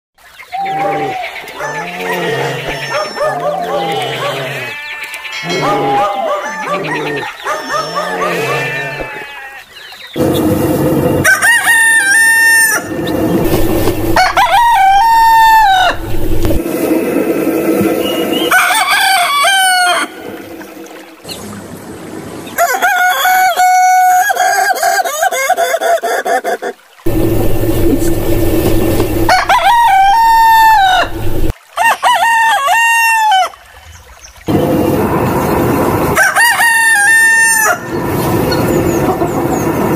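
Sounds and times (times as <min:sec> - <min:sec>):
rooster crowing: 0:01.6 - 0:09.5, 0:11.2 - 0:16.6, 0:18.5 - 0:20.2, 0:22.6 - 0:25.5, 0:28.8 - 0:33.5, 0:36.2 - 0:37.9.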